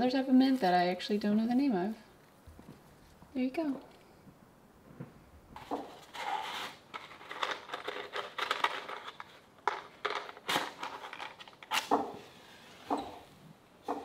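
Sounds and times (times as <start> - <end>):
crinkling and rustling: 4.8 - 13.3.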